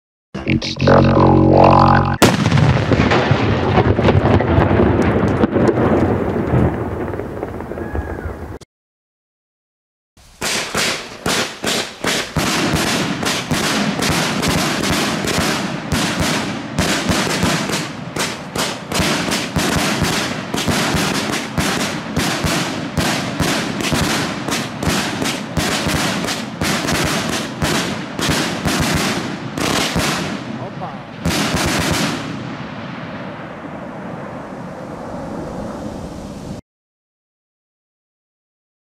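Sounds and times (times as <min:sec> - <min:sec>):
fireworks bangs: 0:02.2 - 0:08.6, 0:10.2 - 0:36.4
fireworks hiss: 0:10.2 - 0:14.4.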